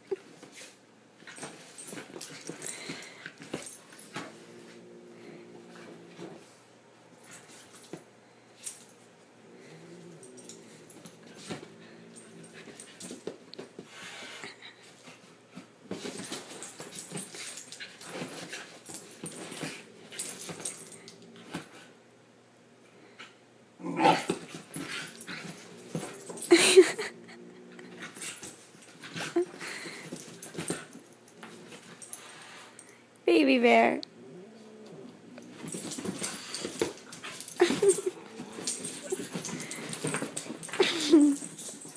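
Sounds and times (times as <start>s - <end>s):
animals scuffling: 10.1s - 21.9s, 24.2s - 27.1s, 34.8s - 41.9s.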